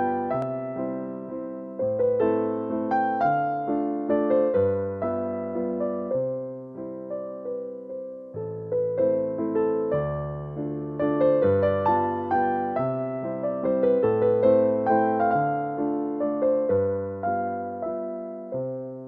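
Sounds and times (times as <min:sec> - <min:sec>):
gentle piano melody: 0:00.0 - 0:19.0.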